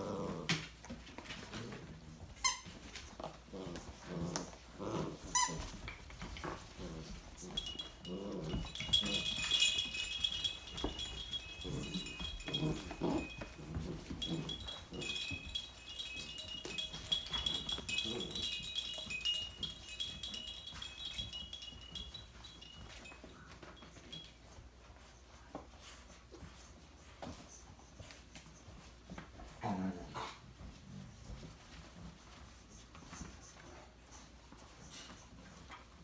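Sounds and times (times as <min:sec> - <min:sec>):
puppies growling and grunting: 0:00.0 - 0:00.7, 0:03.2 - 0:20.4
high tinkling chime-like ringing: 0:05.4 - 0:24.6.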